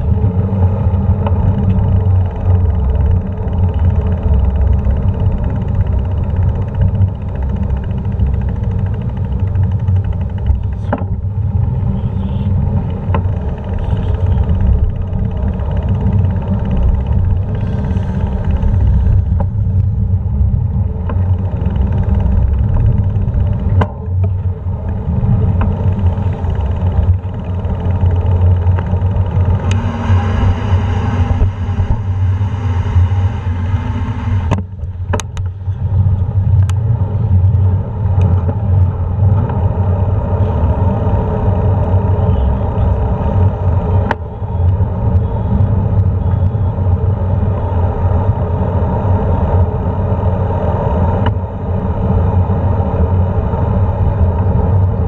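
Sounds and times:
bicycle road noise: 0.0 - 55.0
traffic: 0.0 - 55.0
wind buffeting microphone: 0.0 - 55.0
sharp clicks and knocks: 1.2 - 11.7, 12.7 - 32.2, 34.3 - 35.6.

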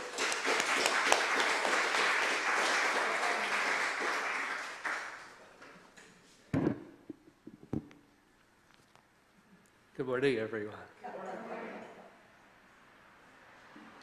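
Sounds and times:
audience clapping: 0.0 - 5.8
short thumps: 6.5 - 8.0.

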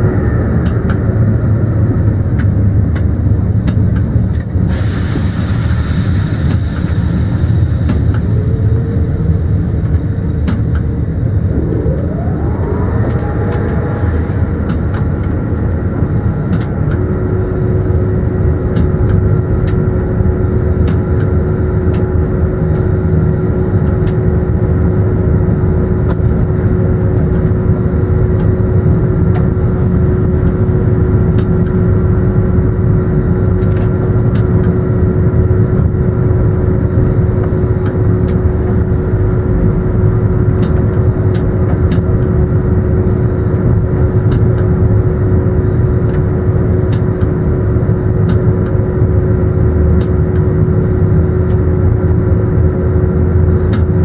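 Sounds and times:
steady whine: 0.0 - 4.6, 6.8 - 20.9
train rumble: 0.0 - 20.0.

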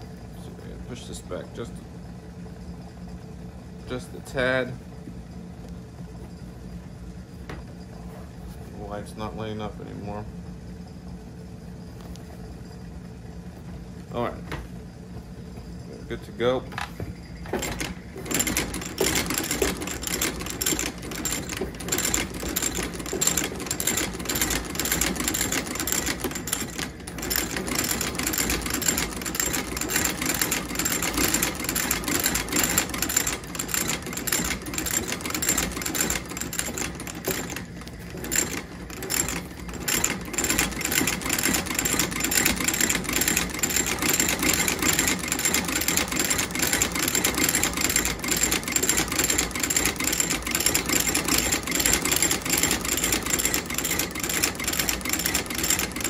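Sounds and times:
stitching machine clattering: 17.4 - 56.0.

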